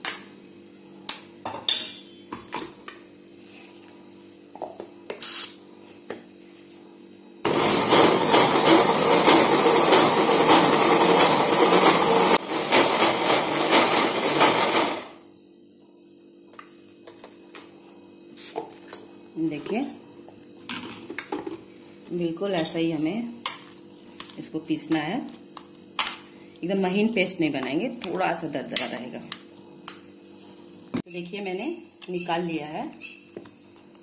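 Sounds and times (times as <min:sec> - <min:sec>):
mixer grinder motor grinding: 0:07.4 - 0:15.2.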